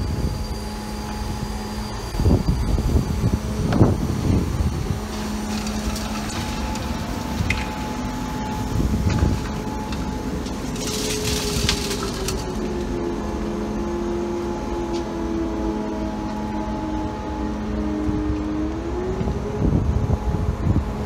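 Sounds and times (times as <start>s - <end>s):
faint engine tone: 0.0s - 21.0s
road traffic: 0.0s - 21.0s.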